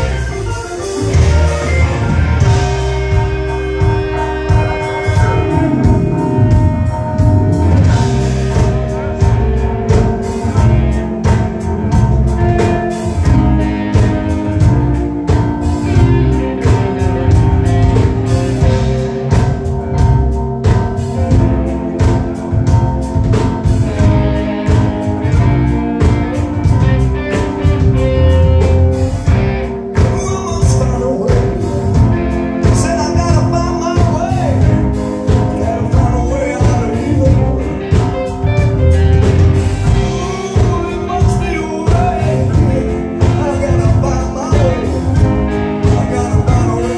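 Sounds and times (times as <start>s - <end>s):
person singing: 0.0s - 19.6s, 29.9s - 46.9s
drum kit beat: 0.0s - 46.9s
electric guitar: 0.0s - 46.9s
keyboard chords: 0.0s - 46.9s.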